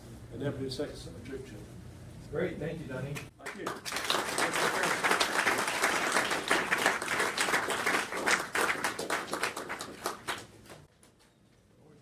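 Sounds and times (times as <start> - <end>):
audience applauding: 3.4 - 10.9.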